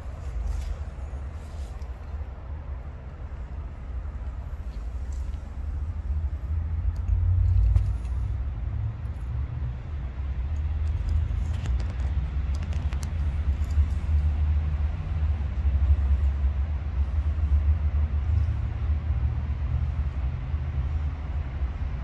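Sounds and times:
tortoise chewing clicks: 0:06.2 - 0:14.6.

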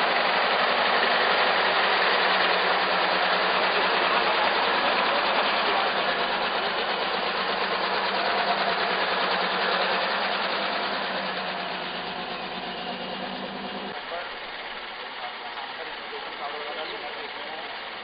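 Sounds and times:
car engine pulling away: 0:00.0 - 0:14.0.

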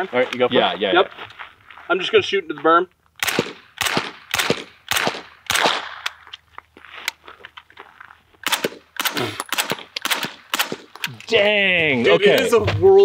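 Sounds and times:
suppressed gunshots: 0:03.2 - 0:06.2, 0:08.4 - 0:11.0.

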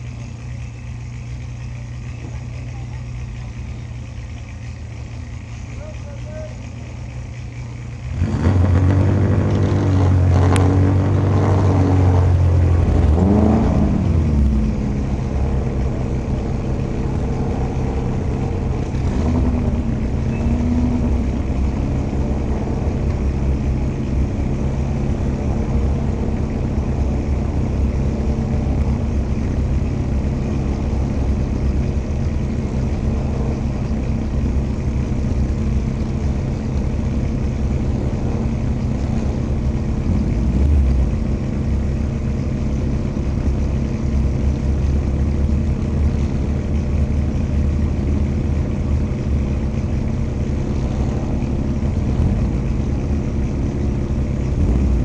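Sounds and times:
race car engine idling: 0:00.0 - 0:55.0.

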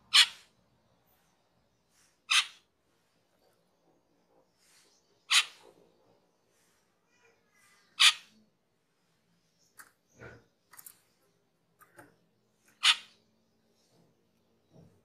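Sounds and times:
starling calls: 0:00.0 - 0:00.5, 0:01.9 - 0:02.7, 0:04.5 - 0:06.7, 0:07.7 - 0:08.4, 0:12.6 - 0:14.0.

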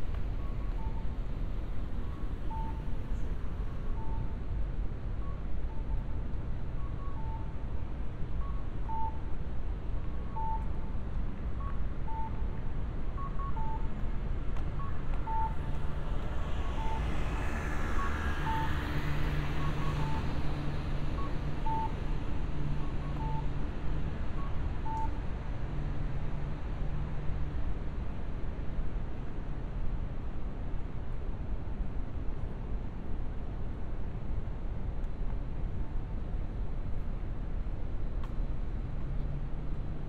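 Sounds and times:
low traffic hum: 0:00.0 - 0:40.0
crossing signal beeps: 0:00.4 - 0:01.2, 0:02.0 - 0:03.0, 0:13.2 - 0:14.0, 0:14.7 - 0:23.6, 0:24.3 - 0:25.2
fainter higher beeps: 0:14.8 - 0:23.5
car passing: 0:14.9 - 0:23.9.

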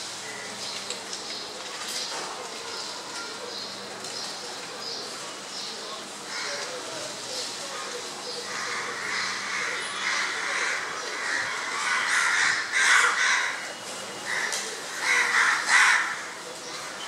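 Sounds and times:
harsh bird calls: 0:08.2 - 0:13.6, 0:14.2 - 0:17.0.

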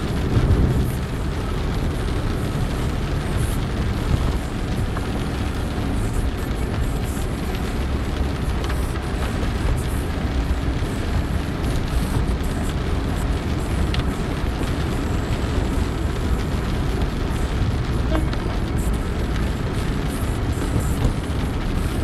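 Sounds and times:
rain on car: 0:00.0 - 0:22.0
road rumble inside car: 0:00.0 - 0:22.0
tyres hissing on wet road: 0:00.0 - 0:22.0.

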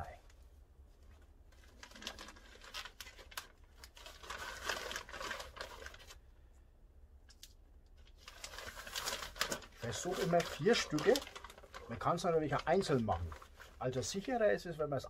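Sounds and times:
plastic bag crinkling: 0:01.5 - 0:06.2, 0:08.0 - 0:14.3.

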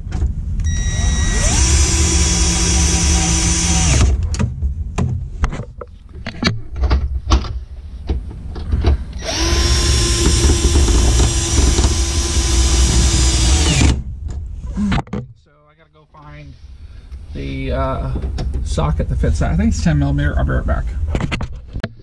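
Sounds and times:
power driver motor spinning: 0:00.7 - 0:04.2, 0:09.2 - 0:14.0.

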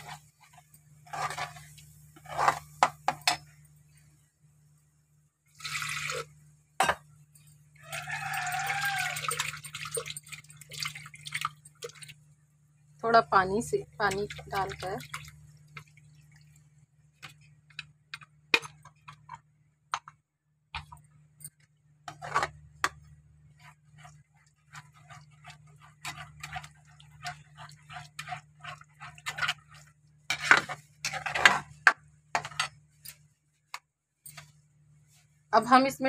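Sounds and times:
metal spatula scraping pan: 0:00.0 - 0:00.3, 0:01.0 - 0:03.4, 0:22.1 - 0:22.6, 0:23.6 - 0:32.8
low steady hum: 0:00.0 - 0:19.9.

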